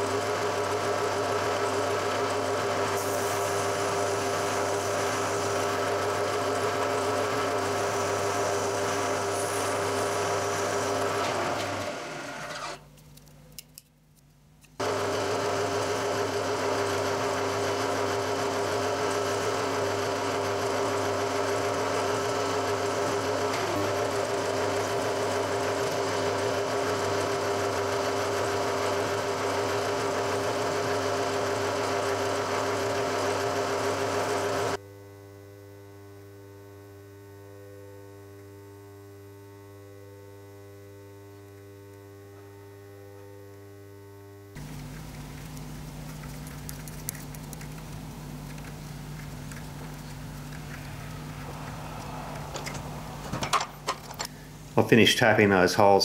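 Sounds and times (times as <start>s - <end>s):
milling machine drilling plastic: 0.0s - 12.8s, 14.8s - 34.8s.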